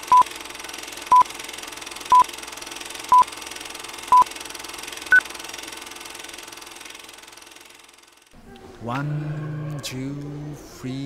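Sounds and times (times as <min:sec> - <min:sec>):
electronic countdown beeps: 0:00.1 - 0:00.3.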